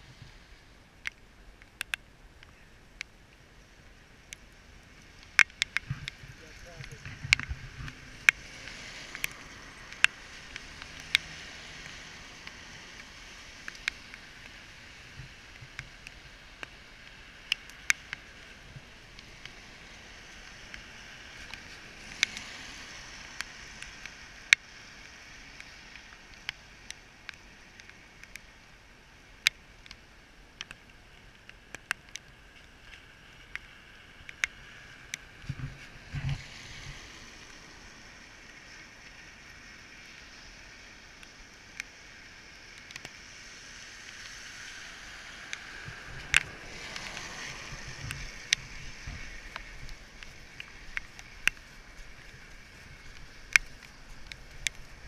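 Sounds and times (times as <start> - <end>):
tyres hissing on wet road: 0.0 - 1.4, 2.2 - 55.0
car passing: 3.6 - 17.5, 18.1 - 26.6, 33.0 - 41.1, 42.2 - 55.0
sharp clicks and taps: 5.2 - 8.4, 48.1 - 55.0.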